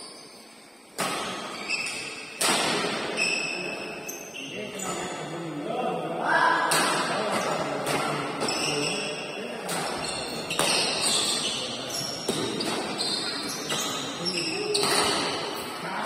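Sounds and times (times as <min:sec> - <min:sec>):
rackets striking shuttlecock: 0:00.9 - 0:03.1, 0:06.7 - 0:08.7, 0:09.6 - 0:11.4, 0:12.2 - 0:15.6
voices talking: 0:02.8 - 0:16.0.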